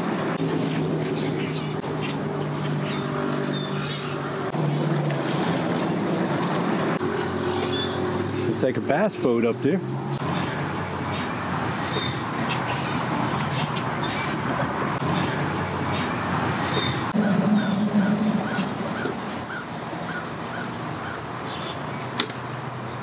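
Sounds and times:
low engine hum: 0.0 - 9.2, 9.8 - 22.7.

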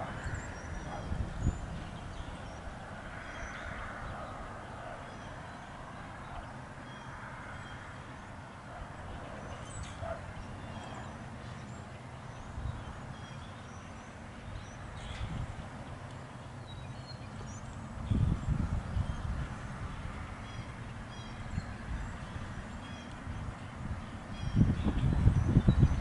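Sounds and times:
wind rumble on microphone: 0.0 - 6.4, 12.3 - 13.2, 14.4 - 16.0, 17.4 - 26.0.

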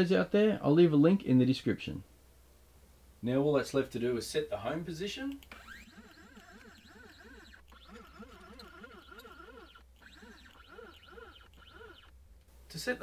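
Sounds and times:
stepper motors whining: 5.4 - 12.2.

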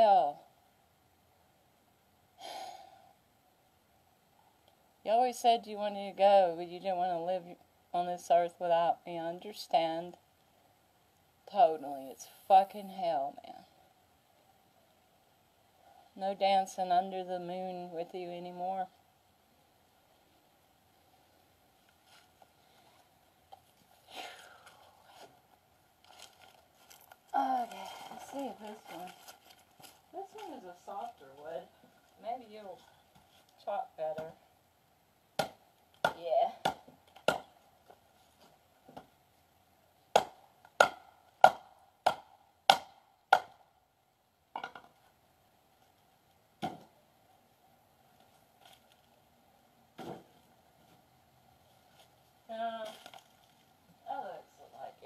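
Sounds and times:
axe chopping wood: 35.4 - 37.5, 40.1 - 43.6, 46.6 - 46.9.

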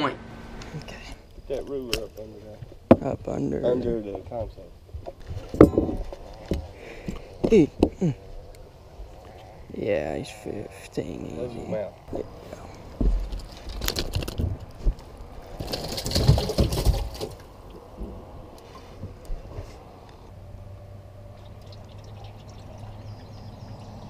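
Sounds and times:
steady low hum: 0.0 - 1.6
water splashing and sloshing: 12.9 - 19.1.

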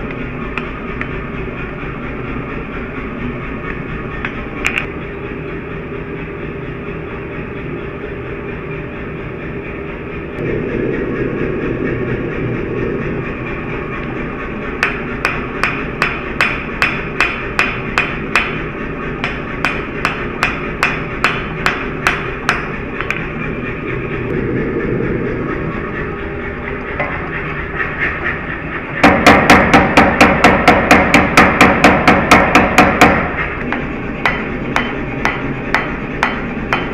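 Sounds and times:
forge roaring: 10.3 - 16.8, 22.0 - 29.4
hammer ringing on anvil: 34.2 - 36.9.

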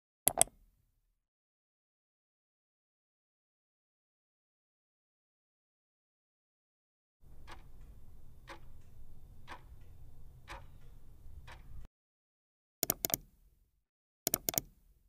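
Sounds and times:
sharp clicks: 0.3 - 0.5, 7.3 - 11.9, 12.8 - 13.3, 14.3 - 14.8
low hum: 7.2 - 11.9
steady ticking: 7.2 - 11.9.

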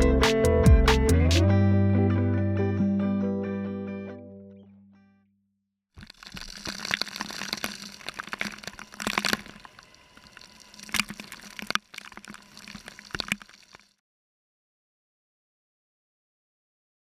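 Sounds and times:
water splashing: 6.0 - 13.9.

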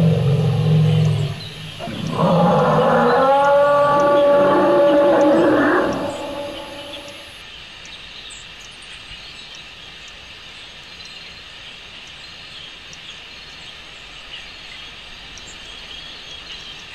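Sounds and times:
high hiss: 0.0 - 7.4.

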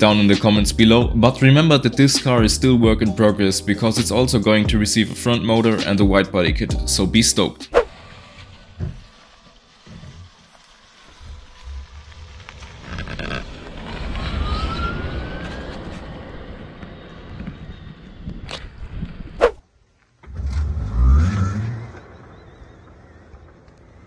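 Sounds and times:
low rumble: 0.0 - 3.1, 6.0 - 19.4.

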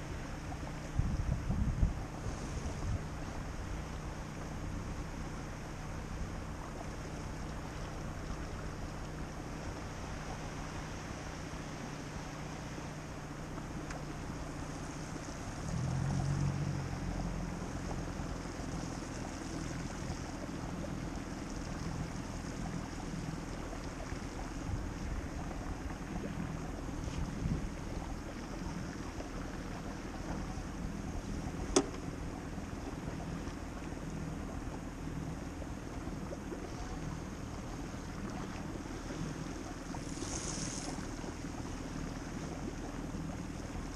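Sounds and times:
moving river water: 0.0 - 43.9
steady low hum: 0.0 - 43.9
wind noise on microphone: 0.8 - 3.5, 24.6 - 28.1.

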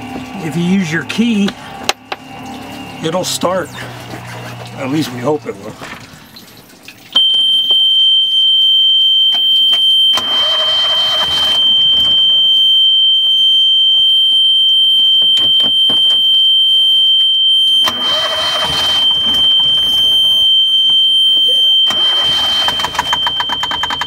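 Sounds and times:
high-pitched alarm buzzer: 9.2 - 24.0
engine starter cranking: 10.2 - 11.6, 17.8 - 19.8, 21.9 - 24.0.

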